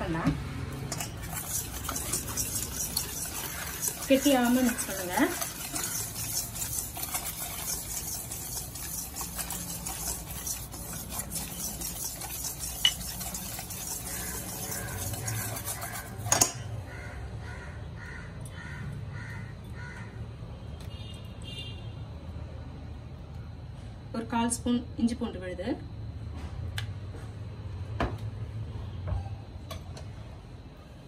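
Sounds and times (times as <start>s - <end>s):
whisk stirring flour in metal bowl: 0.9s - 16.6s.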